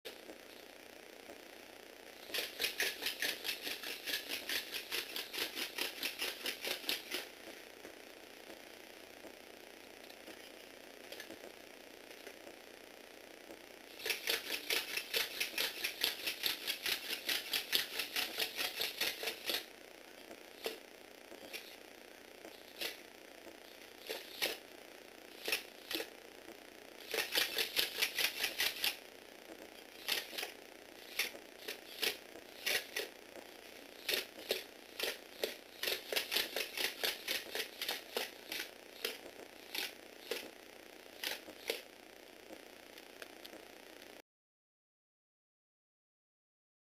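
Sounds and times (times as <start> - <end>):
toy robot clicking on wooden floor: 2.2 - 7.3, 14.0 - 19.7, 24.0 - 24.6, 25.4 - 26.1, 27.0 - 29.0, 30.0 - 33.1, 34.0 - 40.5, 41.2 - 41.8.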